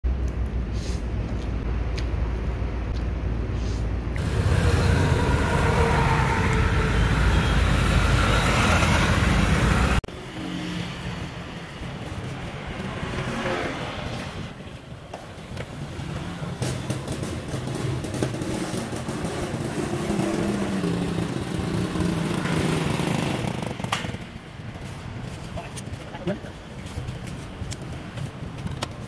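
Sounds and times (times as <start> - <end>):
street background: 0.0 - 29.0
vehicle engine rumble: 0.1 - 10.2.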